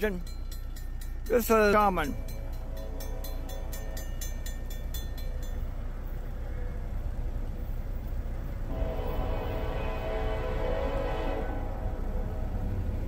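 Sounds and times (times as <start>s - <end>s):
railroad crossing bell ringing: 0.0s - 8.0s.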